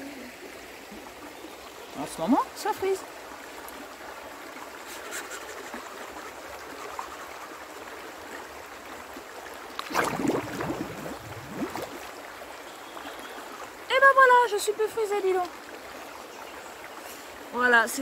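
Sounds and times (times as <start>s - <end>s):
river stream flowing: 0.0s - 18.0s
person splashing in water: 9.7s - 12.1s.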